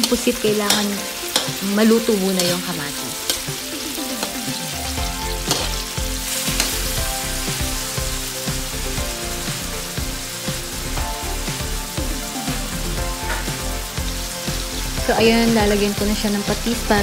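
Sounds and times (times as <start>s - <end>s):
vegetables sizzling in oil: 0.0s - 17.0s
metal ladle scraping a pan: 5.4s - 6.8s.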